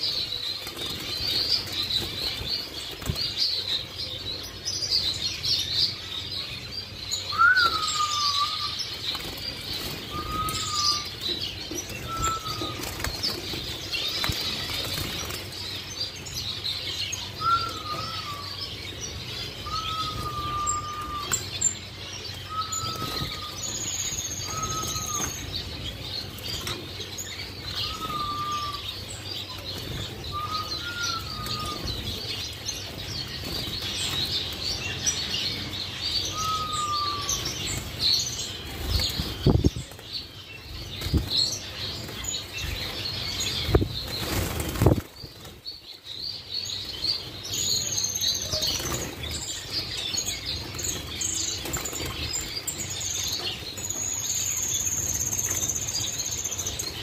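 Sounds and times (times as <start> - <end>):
finches twittering: 0.0 - 57.0
wings flapping: 43.7 - 45.6.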